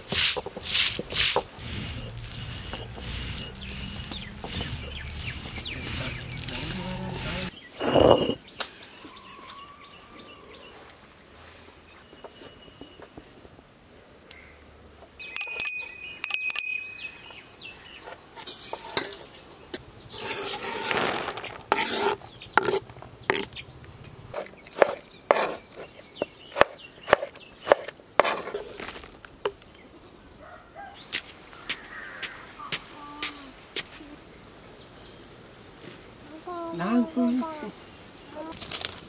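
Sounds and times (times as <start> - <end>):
knife scraping board: 0.1 - 8.4, 20.2 - 23.5, 24.4 - 25.9
ringing metallic clink: 15.2 - 17.3.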